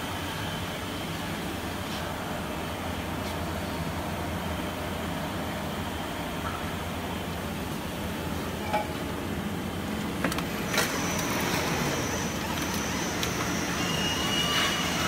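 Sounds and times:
machine mechanical hum: 0.0s - 15.0s
thin high whine: 10.7s - 15.0s.

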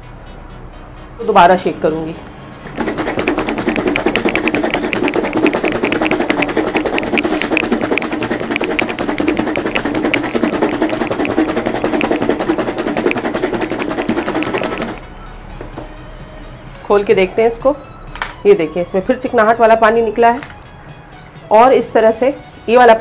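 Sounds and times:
taro and water sloshing in shaken box: 2.7s - 15.0s.

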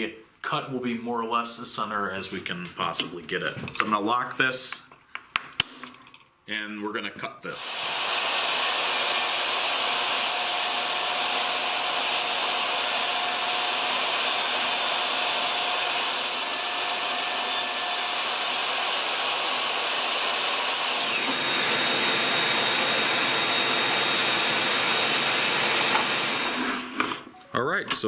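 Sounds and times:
dust extraction running: 7.6s - 27.2s
table saw ripping wood: 7.6s - 27.3s.

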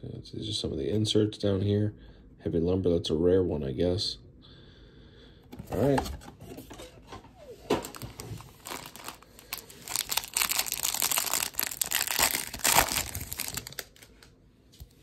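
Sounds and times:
card pack wrapper crinkling: 7.7s - 14.3s.

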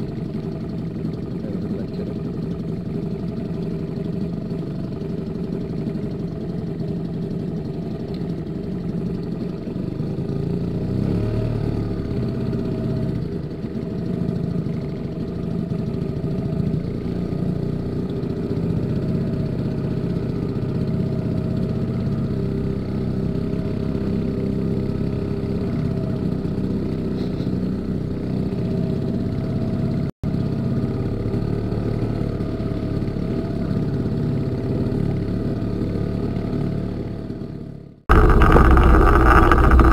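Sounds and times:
outboard motor running: 0.0s - 37.1s, 38.1s - 39.9s.

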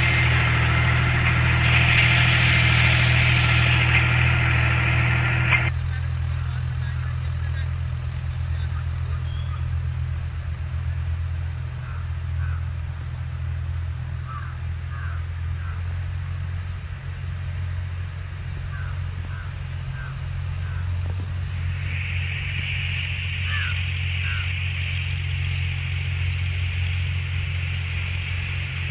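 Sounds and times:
distant tractor engine rumble: 0.0s - 28.9s.

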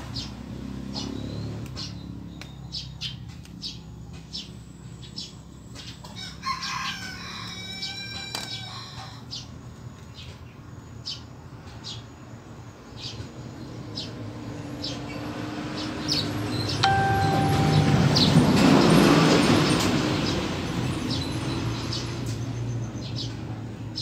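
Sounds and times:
rooster crowing: 6.2s - 9.2s.

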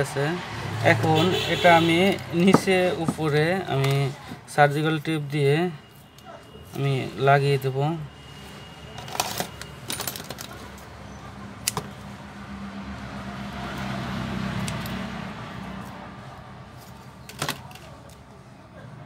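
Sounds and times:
vehicle passing outside: 0.0s - 1.4s, 10.8s - 17.2s.

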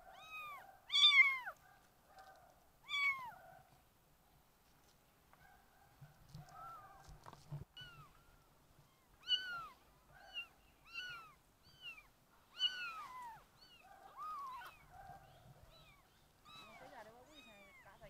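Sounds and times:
kittens mewing: 7.6s - 8.2s, 8.8s - 18.0s.

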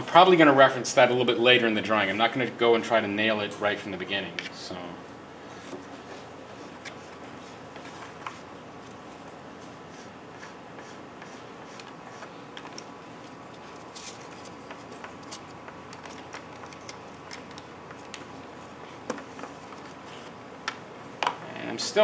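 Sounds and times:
faint steady hum: 0.0s - 22.0s
pastel stick scratching on paper: 9.9s - 12.3s.

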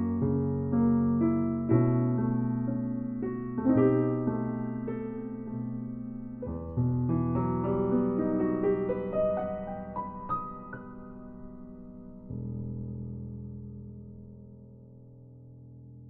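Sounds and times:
slow solo piano chords: 0.0s - 16.0s.

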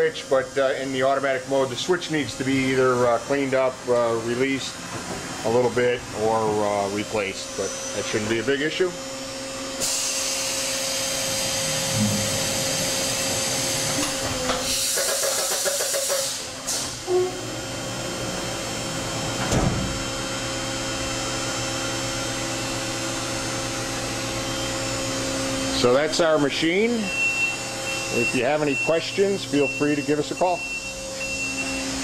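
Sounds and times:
machine hum with constant tones: 0.0s - 32.0s
hiss: 9.8s - 13.1s, 14.5s - 17.0s.

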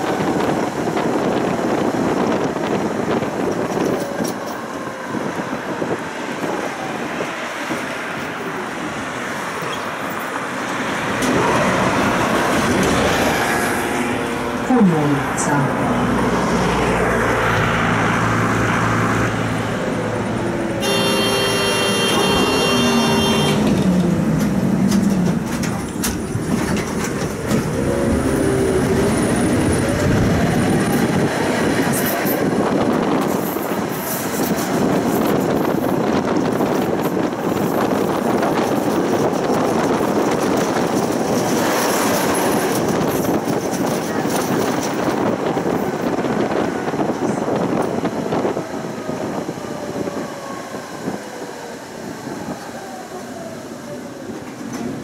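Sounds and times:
tram wheels rumbling on rails: 0.0s - 55.0s.

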